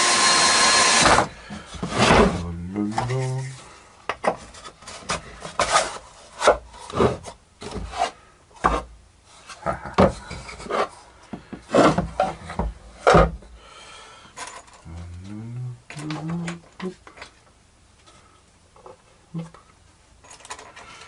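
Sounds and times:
wood scraping and knocking: 1.1 - 3.4, 4.1 - 13.4.

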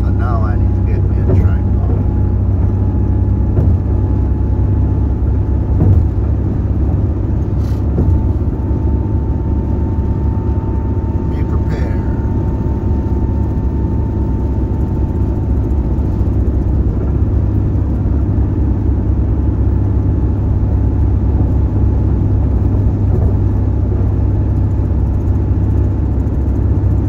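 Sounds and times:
car road and engine rumble: 0.0 - 27.0.

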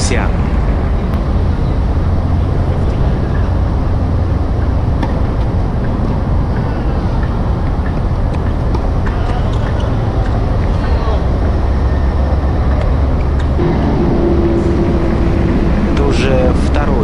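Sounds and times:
low background rumble: 0.0 - 17.0
tennis balls struck with racquets: 7.1 - 13.6.

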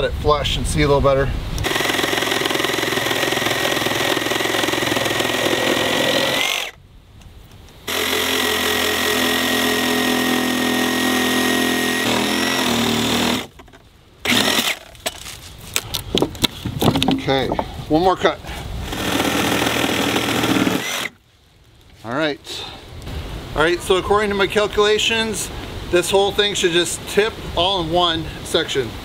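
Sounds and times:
reciprocating saw cutting wood: 1.6 - 6.8, 7.9 - 13.6, 14.2 - 15.2, 18.8 - 21.2.

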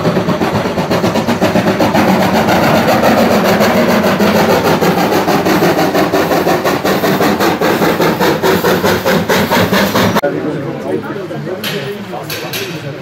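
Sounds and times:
steam hissing: 0.0 - 10.2
steam locomotive chugging: 0.0 - 13.0.

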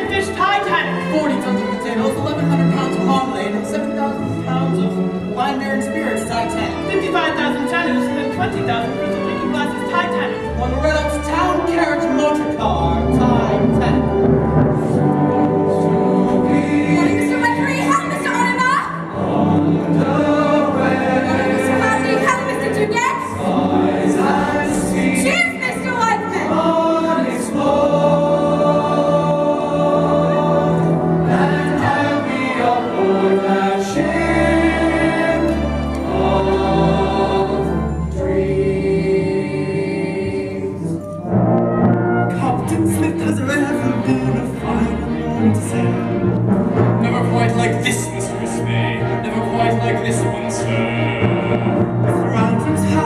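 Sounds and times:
orchestra playing: 0.0 - 53.0
choir singing: 12.4 - 41.4, 43.7 - 53.0.

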